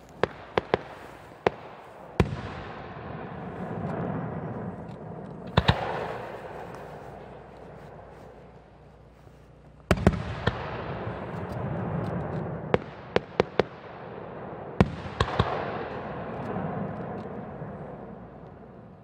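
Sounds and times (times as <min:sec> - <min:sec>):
firework shells bursting: 0:00.0 - 0:08.1.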